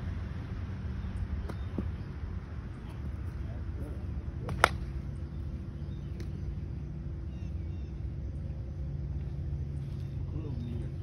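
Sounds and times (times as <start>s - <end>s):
low background rumble: 0.0s - 11.0s
golf club striking ball: 4.4s - 5.0s.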